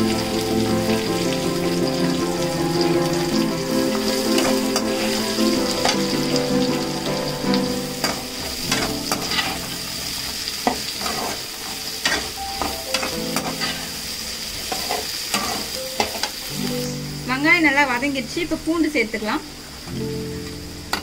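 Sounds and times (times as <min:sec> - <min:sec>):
onions sizzling in oil: 0:00.0 - 0:21.0
metal spatula scraping a pan: 0:07.6 - 0:09.8, 0:10.6 - 0:14.0, 0:14.6 - 0:16.8.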